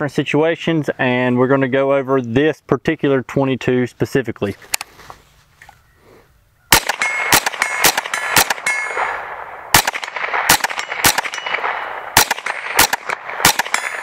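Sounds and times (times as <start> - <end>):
rifle shots: 6.7 - 14.0
metallic ring of steel targets: 6.9 - 9.4, 10.8 - 12.8, 13.6 - 14.0.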